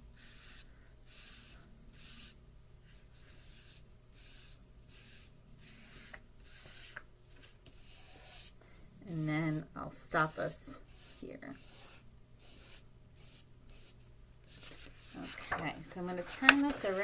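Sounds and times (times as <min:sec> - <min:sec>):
fingertip rubbing pastel on paper: 0:10.2 - 0:15.4.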